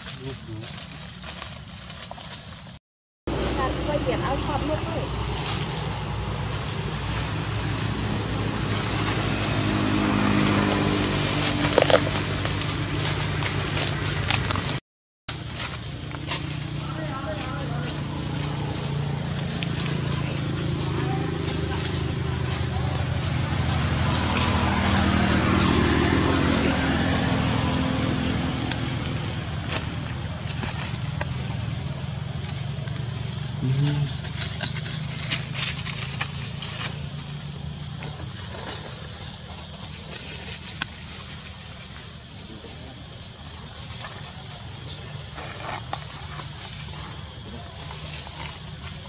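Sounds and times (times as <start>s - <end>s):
low engine drone: 3.3s - 49.0s.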